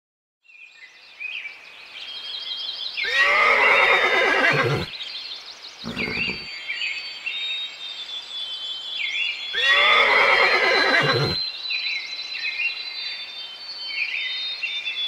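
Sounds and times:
horse whinnying: 3.1 - 4.9, 5.9 - 6.5, 9.6 - 11.4.

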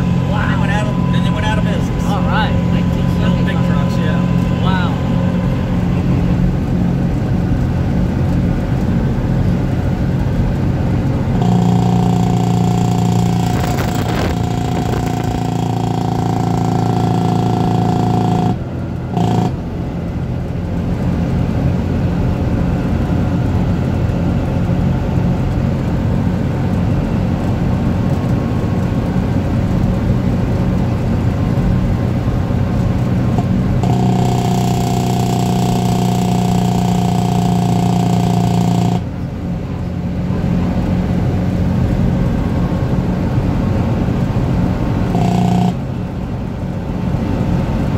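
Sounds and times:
steady whine: 0.0 - 20.5, 32.4 - 47.9
truck diesel engine running: 0.0 - 47.9.

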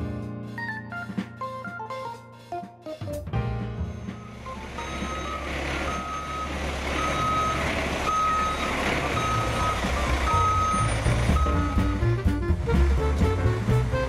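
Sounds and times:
diesel engine running: 3.9 - 14.0
reversing alarm beeping: 4.1 - 11.9.

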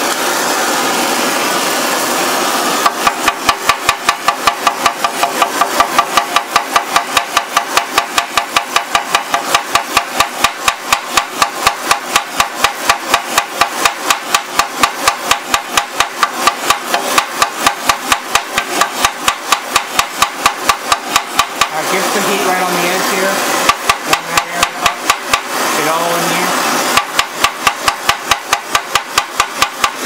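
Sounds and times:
gas torch flame hissing: 0.0 - 30.0.

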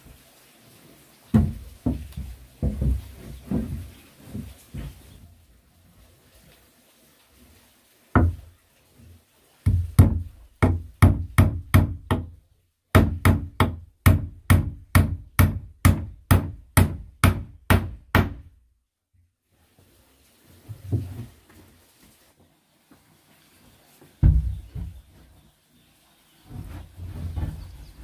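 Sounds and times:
hammer striking wood: 9.7 - 18.5.

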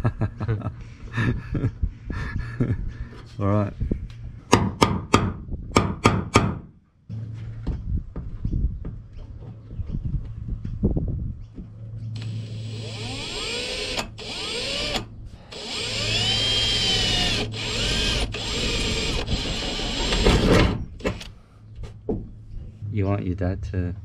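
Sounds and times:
electric drill drilling metal: 12.2 - 21.3.

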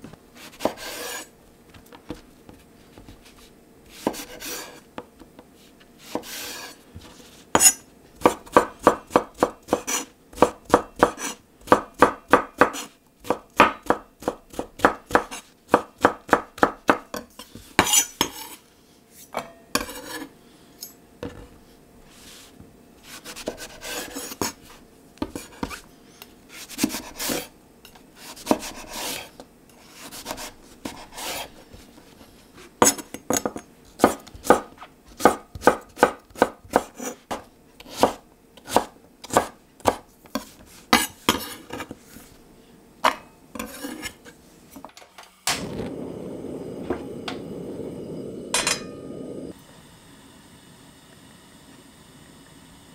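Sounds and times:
knife chopping on wooden board: 0.5 - 1.2, 4.0 - 4.8, 6.1 - 6.7, 7.6 - 18.4, 28.2 - 29.2, 32.8 - 41.9.

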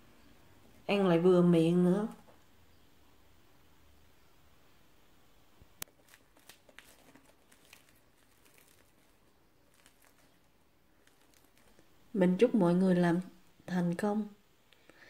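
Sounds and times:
bread crust snapping and crackling: 5.6 - 12.1.

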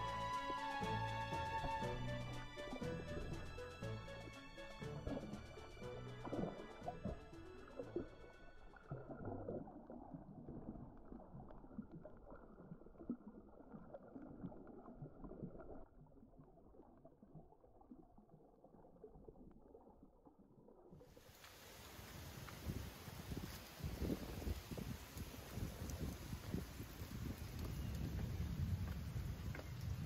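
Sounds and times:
faint underwater clicks: 0.0 - 15.9, 24.6 - 30.0
underwater rumbling of water: 0.0 - 30.0
open-air hiss: 21.2 - 26.3.

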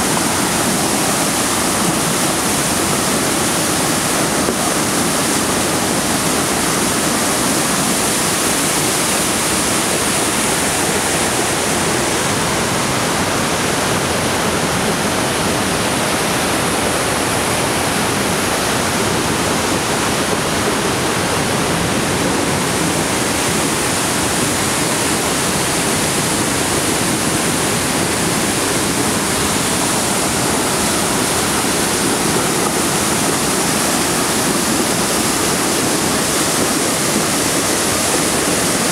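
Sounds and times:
river rushing over rocks: 0.0 - 38.9.

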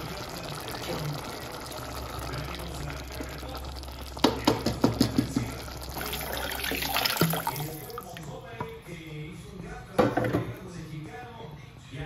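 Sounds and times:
liquid pouring with splash: 0.0 - 8.2
rice cooking in a pot: 0.0 - 8.2
spatula knocking against pot: 4.2 - 5.5.

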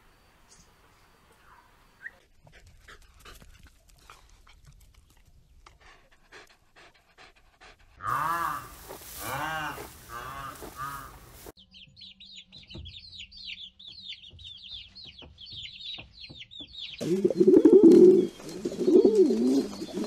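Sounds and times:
chicks peeping: 11.6 - 20.0.

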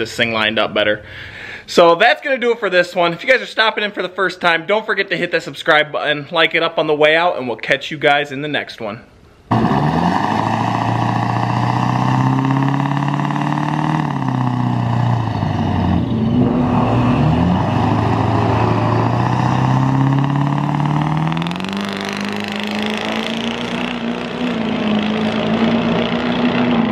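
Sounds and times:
diesel pickup engine revving: 9.5 - 26.9.

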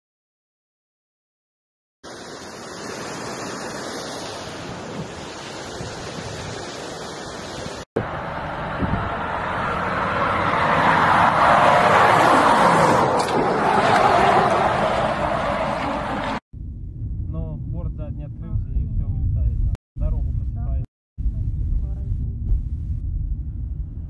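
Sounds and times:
wind rushing over microphone: 4.4 - 10.8.

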